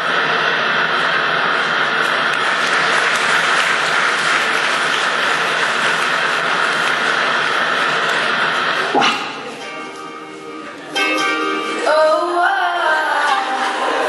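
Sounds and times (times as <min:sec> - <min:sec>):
audience applauding: 0:01.5 - 0:10.0.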